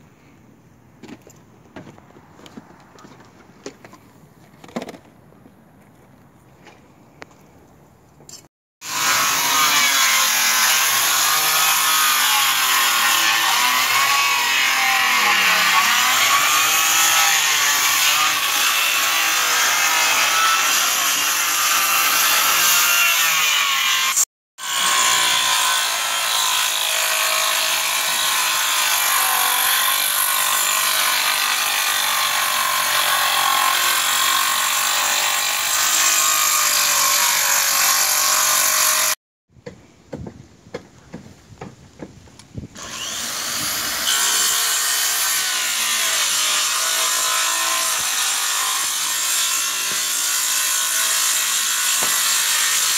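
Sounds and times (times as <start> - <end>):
circular saw cutting: 8.8 - 39.2, 42.8 - 52.9.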